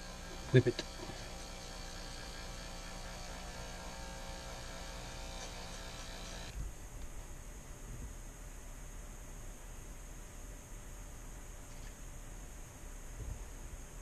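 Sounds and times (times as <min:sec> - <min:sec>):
electric hair clippers buzzing: 0:00.0 - 0:06.6.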